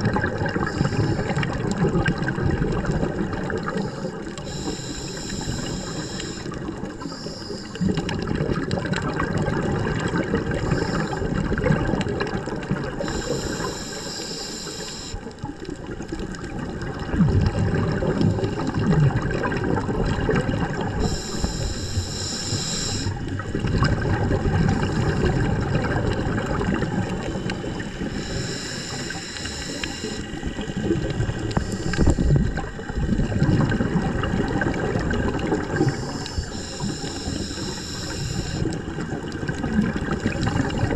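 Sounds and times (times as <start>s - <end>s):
gurgling exhaled bubbles: 0.0s - 40.9s
hissing regulator inhale: 0.6s - 1.7s, 3.6s - 8.2s, 10.4s - 11.4s, 12.9s - 15.4s, 21.0s - 23.4s, 24.5s - 25.6s, 27.1s - 30.7s, 31.3s - 32.9s, 35.4s - 39.1s.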